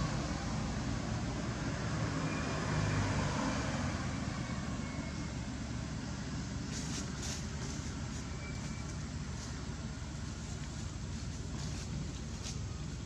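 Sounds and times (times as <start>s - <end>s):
constant hiss: 5.5s - 13.0s
short sharp rustles: 6.7s - 9.6s.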